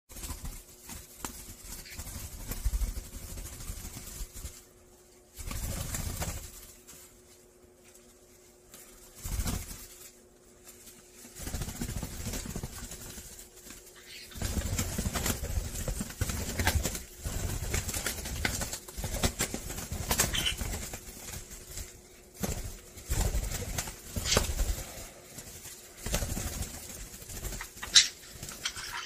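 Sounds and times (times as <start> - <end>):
parrot wings fluttering: 0.1 - 29.0.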